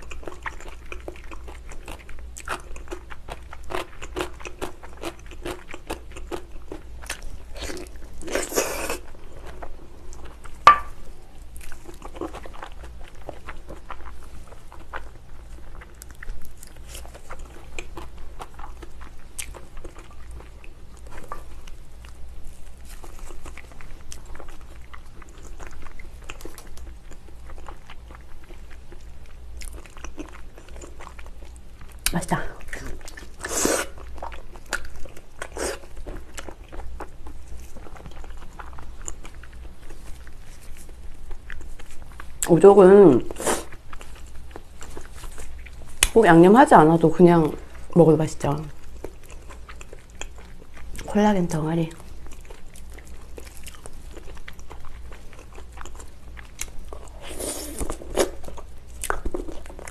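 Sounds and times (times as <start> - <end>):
biting and chewing: 0.0 - 42.6, 48.7 - 51.1, 52.0 - 59.9.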